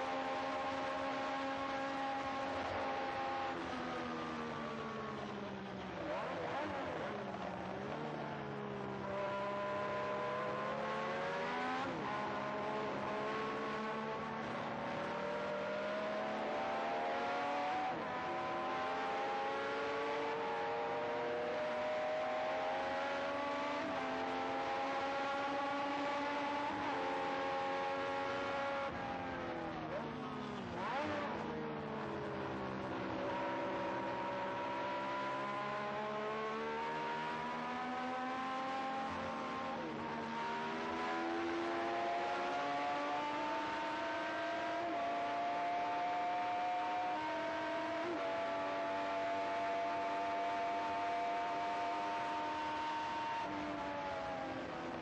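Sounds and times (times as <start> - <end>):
racing car engine: 0.0 - 55.0.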